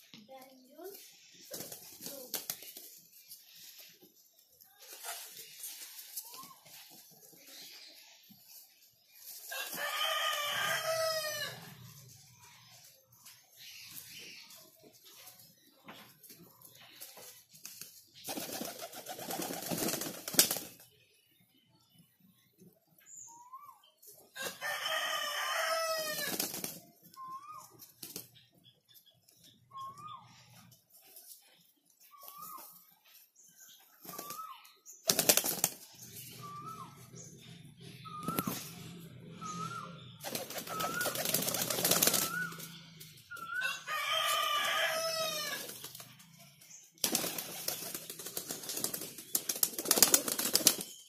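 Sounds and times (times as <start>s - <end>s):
pigeons flapping wings: 1.5s - 3.0s, 17.6s - 20.8s, 26.1s - 26.8s, 35.1s - 35.9s, 40.2s - 42.7s, 47.0s - 51.0s
rooster crowing: 9.5s - 11.7s, 24.4s - 26.3s, 43.5s - 45.7s
bird chirps: 20.9s - 24.1s, 27.0s - 30.7s, 35.9s - 43.8s.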